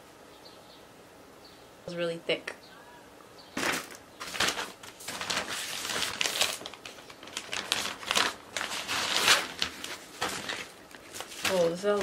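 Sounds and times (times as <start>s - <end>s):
plastic bag crinkling: 3.6s - 12.0s.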